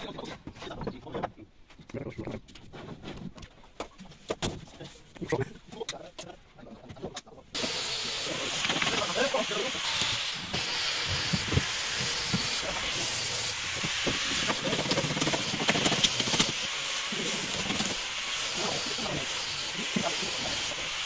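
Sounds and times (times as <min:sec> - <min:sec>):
steady hiss: 0:07.6 - 0:21.0.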